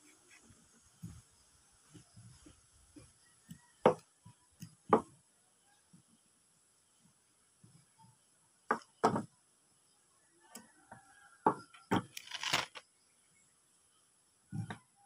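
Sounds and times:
metal tools knocking on wooden bench: 0:08.7 - 0:09.3, 0:11.4 - 0:12.1.

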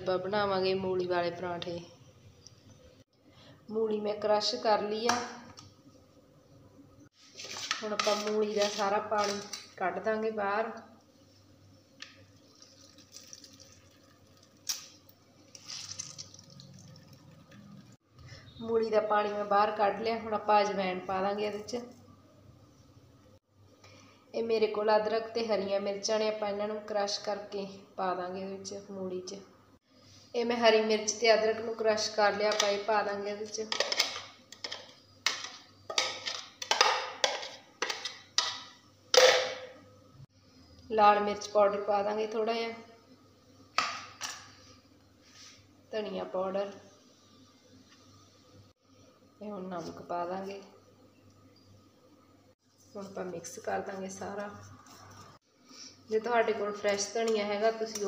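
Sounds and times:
water dripping and trickling: 0:12.3 - 0:14.9, 0:15.5 - 0:18.0.

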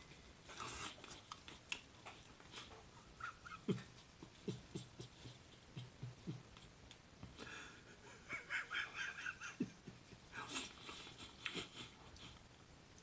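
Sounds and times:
man wheezing laughter: 0:03.0 - 0:06.6, 0:07.4 - 0:12.4.

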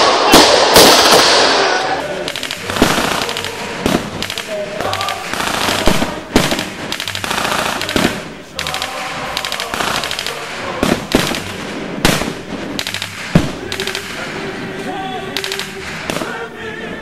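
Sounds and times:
single rifle shots: 0:00.0 - 0:14.3
blank machine-gun fire: 0:02.3 - 0:14.3.

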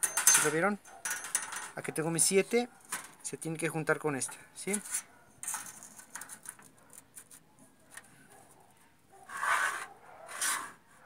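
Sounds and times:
pencil scratching a line: 0:09.2 - 0:10.8.

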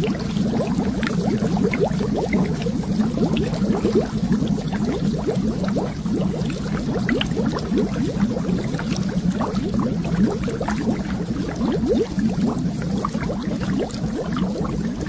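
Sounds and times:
water bubbling: 0:00.0 - 0:15.0.

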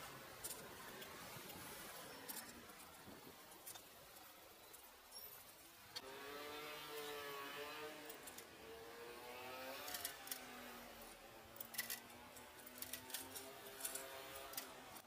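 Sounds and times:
engine revving: 0:06.0 - 0:11.2.

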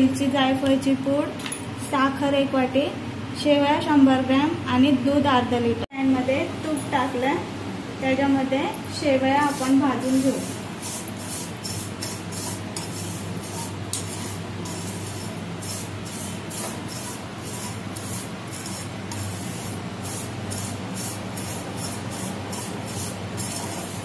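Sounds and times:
pasta sizzling in a pan: 0:09.5 - 0:24.0.

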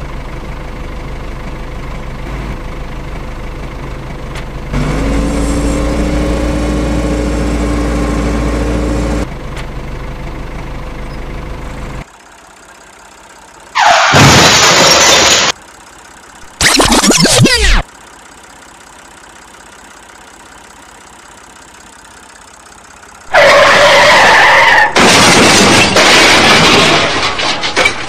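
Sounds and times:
steady engine whine: 0:00.0 - 0:14.3
tractor engine running: 0:00.0 - 0:28.0.

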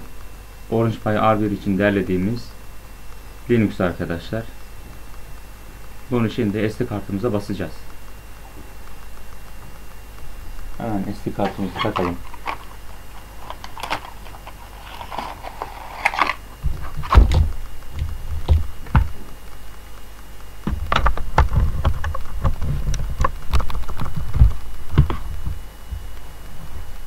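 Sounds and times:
rustling handling noise: 0:10.8 - 0:19.2.

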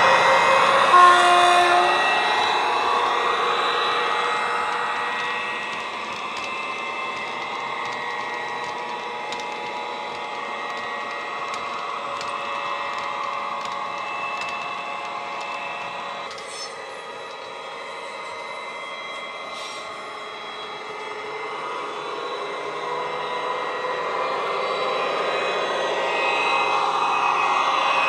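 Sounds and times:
wagon wheels clicking on track: 0:02.4 - 0:17.8.

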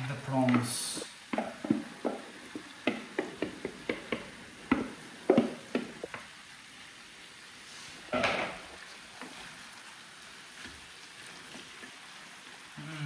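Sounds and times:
prawns tapping into frying pan: 0:00.4 - 0:06.3.

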